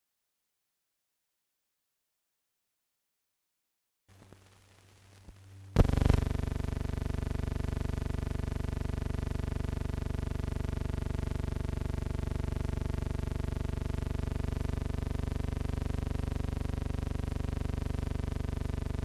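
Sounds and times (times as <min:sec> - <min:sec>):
buzzing hum with flutter: 0:04.1 - 0:19.0.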